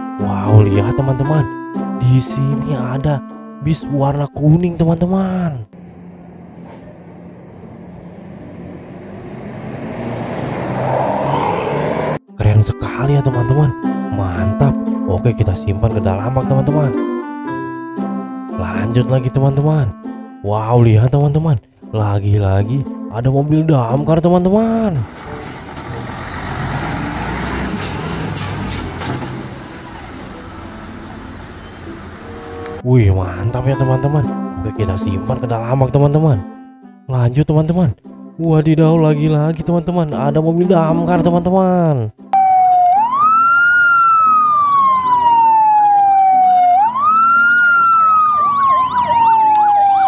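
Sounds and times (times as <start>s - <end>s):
traffic noise: 5.7s - 12.2s, 24.8s - 32.8s, 43.9s - 50.0s
diesel engine running: 5.8s - 12.2s, 25.0s - 32.8s
siren warbling: 7.5s - 12.2s, 42.4s - 50.0s
fire engine siren wailing: 42.4s - 50.0s.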